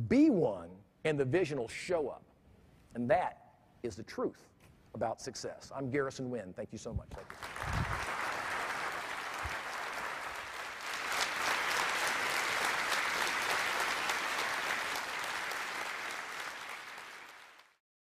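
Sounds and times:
audience applauding: 7.2s - 17.8s.

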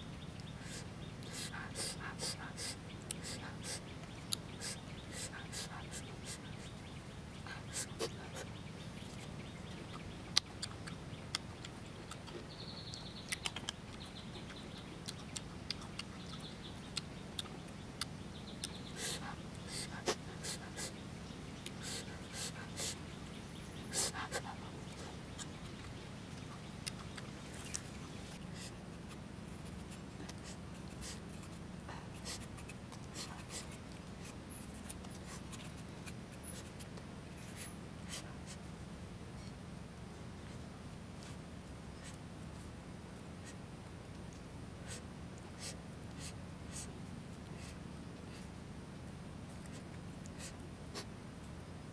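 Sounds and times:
chewing crisp fruit: 0.4s - 6.8s, 7.5s - 38.8s
mouth clicks: 9.1s - 21.0s.

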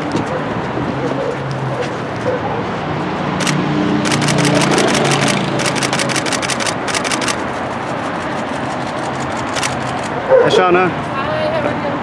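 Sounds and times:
car engine passing: 1.6s - 11.0s
bursts of rapid clicks: 3.4s - 10.2s.

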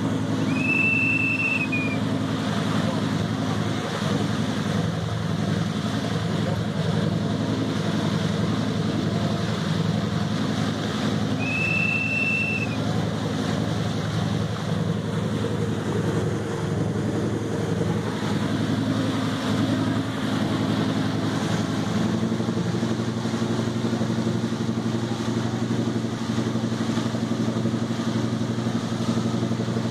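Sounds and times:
boat engine running: 0.0s - 29.9s
rushing wind and water: 0.0s - 29.9s
high whistle-like tone: 0.4s - 2.0s, 11.4s - 12.8s.

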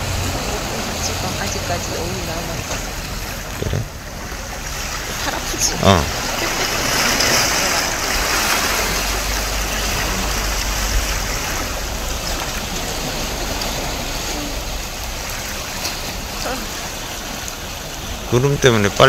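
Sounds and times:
low rumble: 0.0s - 19.0s
sea waves washing on shore: 0.0s - 19.0s.

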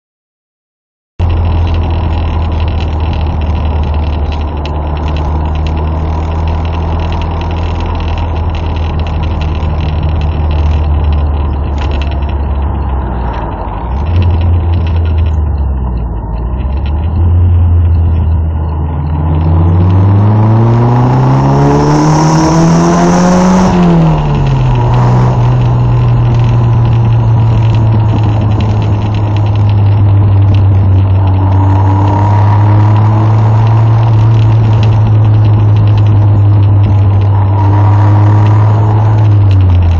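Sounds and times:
car engine revving: 1.2s - 39.9s
wind rush: 19.2s - 39.9s.

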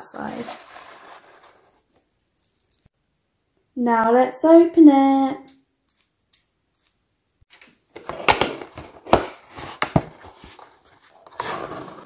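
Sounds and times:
cardboard scraping and rustling: 0.2s - 1.8s, 8.0s - 12.0s.

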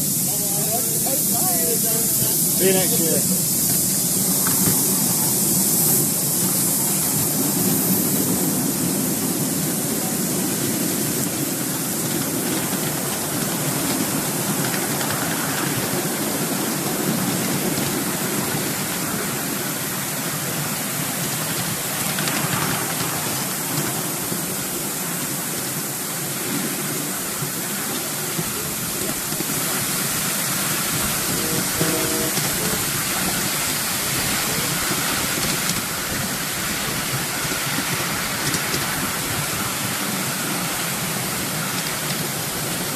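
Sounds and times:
locomotive steam: 0.0s - 42.9s
wheels running on rails: 0.0s - 42.9s.

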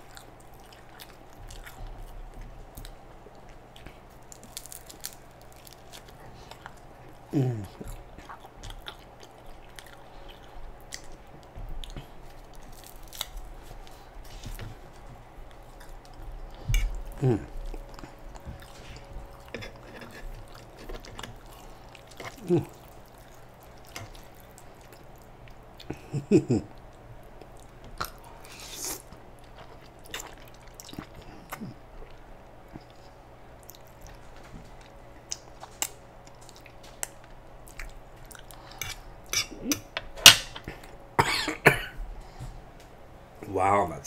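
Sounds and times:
wet chewing and lip smacks: 7.8s - 14.0s.

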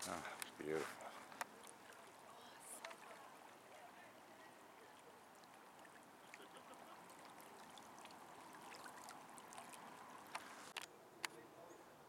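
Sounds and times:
small waves lapping at shore: 0.0s - 10.8s
light ticks of water: 0.3s - 11.4s.

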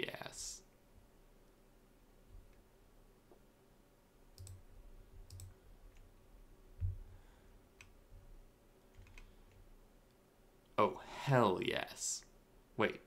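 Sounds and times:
computer mouse clicks: 4.3s - 6.1s, 7.8s - 8.0s, 8.9s - 10.2s.

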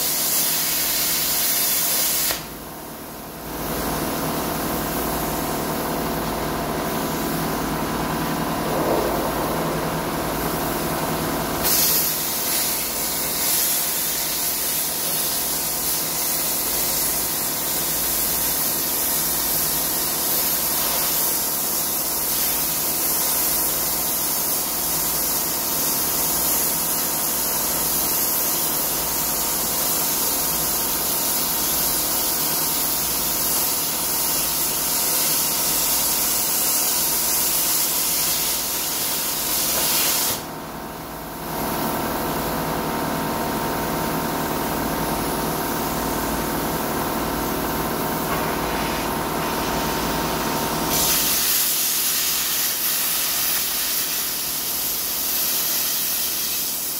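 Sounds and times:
plasma cutter hissing: 0.0s - 2.6s, 11.6s - 40.5s, 48.0s - 56.9s.

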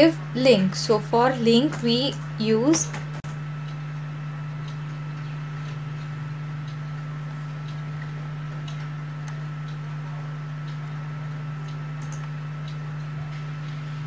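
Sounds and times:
steady low hum: 0.0s - 14.0s
computer keys and mouse clicking: 12.0s - 12.3s.

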